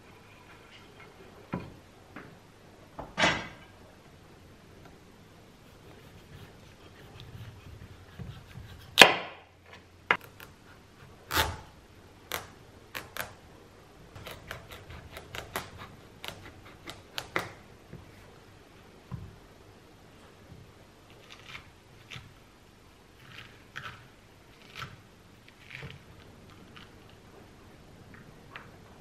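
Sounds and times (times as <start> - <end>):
knife cutting squash on board: 5.7 - 9.4, 14.2 - 17.6.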